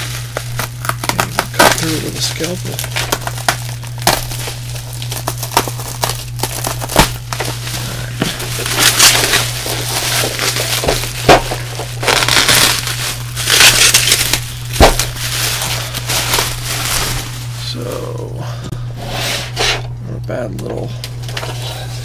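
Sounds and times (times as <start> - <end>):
bubble wrap crinkling and crackling: 0.0 - 18.3.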